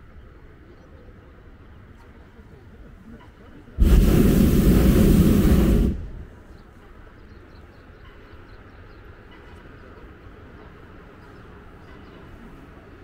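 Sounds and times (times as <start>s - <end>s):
propane burner roaring: 3.8s - 6.3s.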